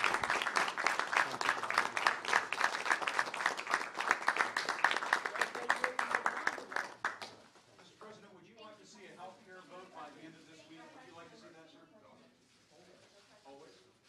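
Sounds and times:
small group clapping: 0.0s - 7.7s.

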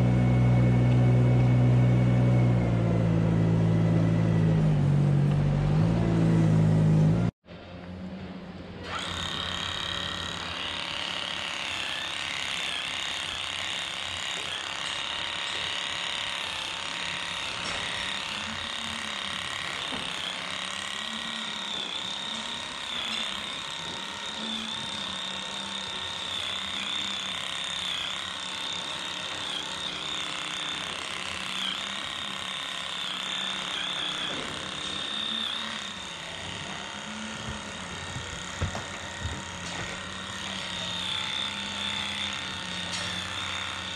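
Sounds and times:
electric brush motor running: 0.0s - 7.4s, 8.8s - 43.9s.

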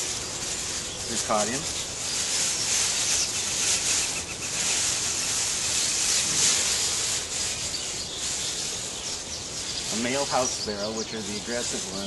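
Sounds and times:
plastic bag crinkling: 0.0s - 8.9s.

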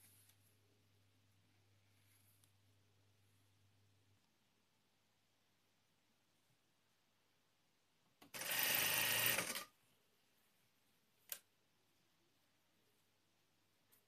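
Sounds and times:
sewing machine stitching: 8.2s - 9.8s.

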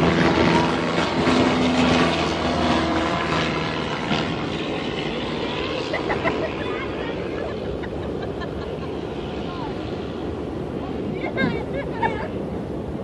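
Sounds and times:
propeller airplane engine drone: 0.0s - 13.0s
steady rushing noise: 0.0s - 13.0s.

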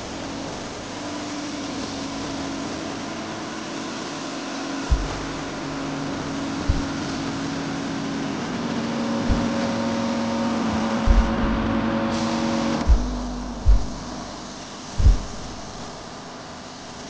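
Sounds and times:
steady machine hum: 0.0s - 17.0s
short low thumps: 4.9s - 7.4s, 9.3s - 9.7s, 10.8s - 11.9s, 12.8s - 16.1s.

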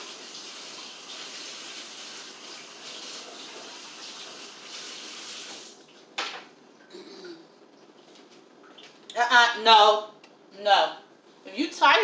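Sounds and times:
tap water running: 0.0s - 6.4s.

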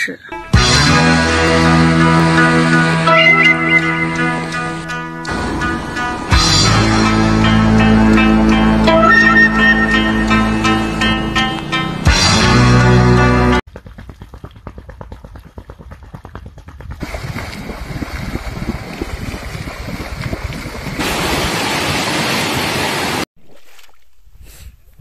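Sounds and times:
muddy water bubbling and gurgling: 16.8s - 24.3s.

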